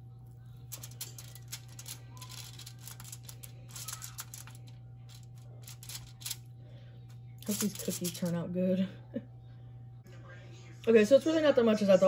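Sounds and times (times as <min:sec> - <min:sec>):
steady low hum: 0:00.0 - 0:12.0
aluminium foil crinkling: 0:00.4 - 0:06.5, 0:07.4 - 0:08.4.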